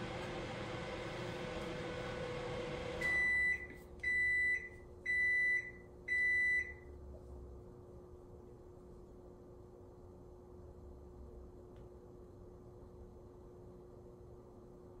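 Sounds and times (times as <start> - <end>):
machine hum: 0.0 - 3.2.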